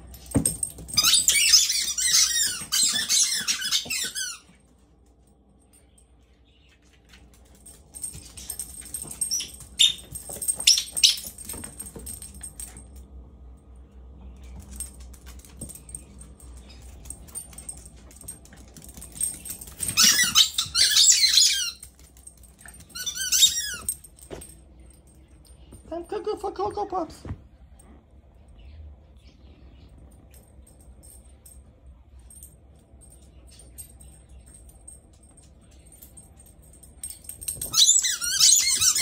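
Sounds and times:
squeaky toy squeaking: 0:01.0 - 0:04.5, 0:20.0 - 0:21.8, 0:22.9 - 0:23.9, 0:37.7 - 0:39.0.

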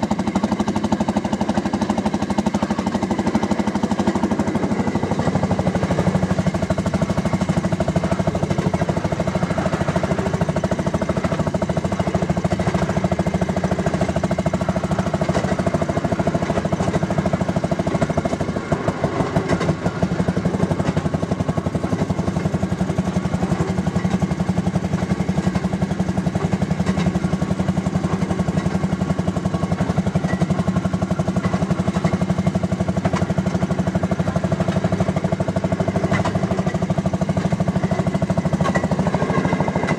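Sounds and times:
two-stroke engine putt-putt: 0:00.0 - 0:39.9.

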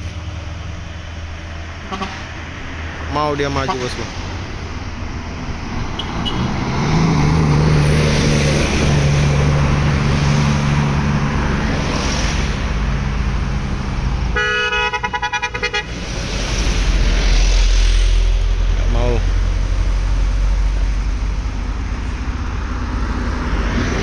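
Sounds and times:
vehicles passing on road: 0:00.0 - 0:24.0
pulsing vehicle horn: 0:01.8 - 0:02.3, 0:06.0 - 0:06.5, 0:14.3 - 0:15.9.

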